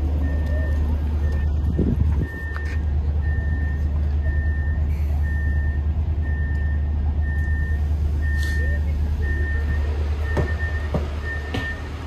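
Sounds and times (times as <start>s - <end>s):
train engine low hum: 0.0s - 12.0s.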